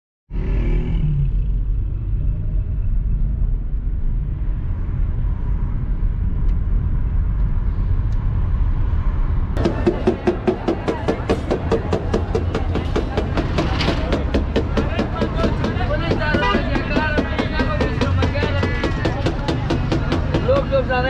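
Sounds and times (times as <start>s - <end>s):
music with drum beats: 9.6s - 20.7s.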